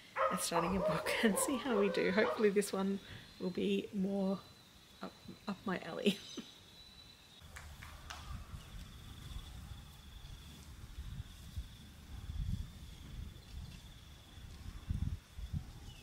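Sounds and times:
wind buffeting microphone: 7.4 - 16.0
high-pitched insect trill: 8.3 - 16.0.

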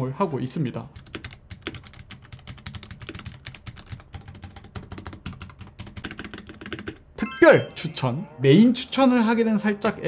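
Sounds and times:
mechanical keyboard typing: 1.0 - 7.0.

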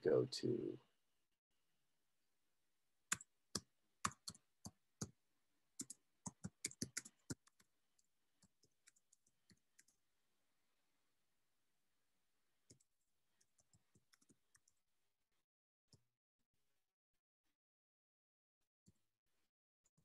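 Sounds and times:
typing on computer keyboard: 3.1 - 4.8, 5.8 - 10.0, 12.7 - 14.8.

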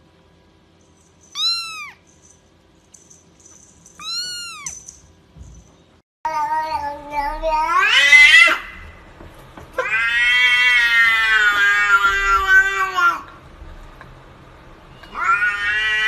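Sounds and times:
cat meowing: 1.3 - 2.0, 4.0 - 4.8, 9.8 - 13.2, 15.0 - 16.0.

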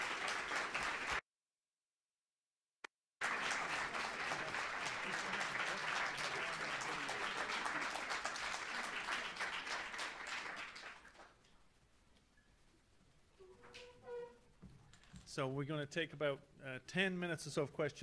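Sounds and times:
audience applauding: 0.0 - 1.2, 3.2 - 11.4.

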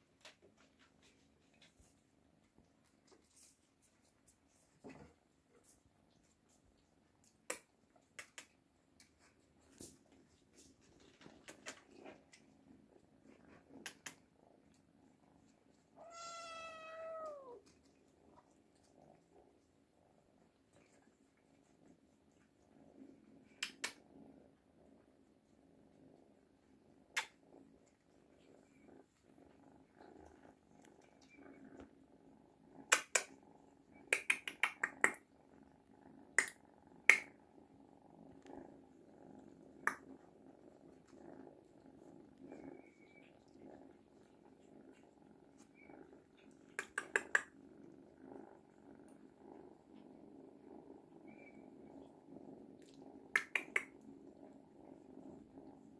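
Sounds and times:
cat purring: 0.0 - 55.9
sharp clicks: 46.7 - 47.5.

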